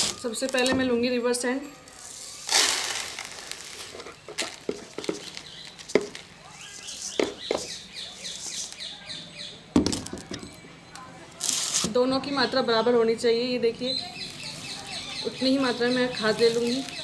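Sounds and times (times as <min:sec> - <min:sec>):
sand pouring into plastic tub: 0:02.1 - 0:03.9
small birds chirping: 0:03.4 - 0:09.7, 0:12.2 - 0:17.0.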